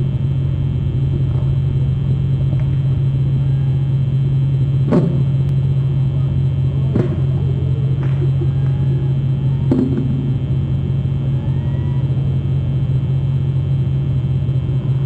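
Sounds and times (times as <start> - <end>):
low rumbling hum: 0.0 - 15.0
short knocks: 4.9 - 5.5.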